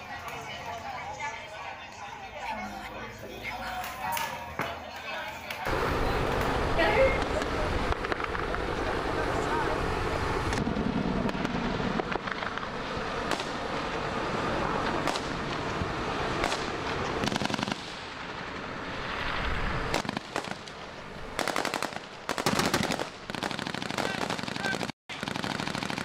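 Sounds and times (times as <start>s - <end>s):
automatic gunfire bursts: 21.4s - 26.0s.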